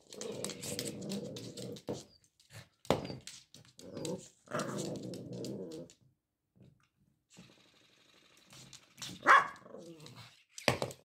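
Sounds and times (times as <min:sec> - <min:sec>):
puppy growling: 0:00.0 - 0:02.0, 0:03.8 - 0:06.0, 0:09.6 - 0:10.3.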